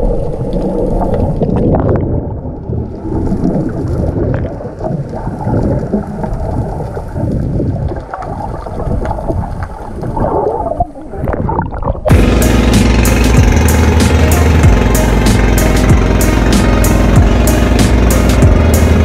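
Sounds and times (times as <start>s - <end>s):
bubbling: 0.0s - 12.3s
underwater rumble and gurgle: 0.0s - 14.0s.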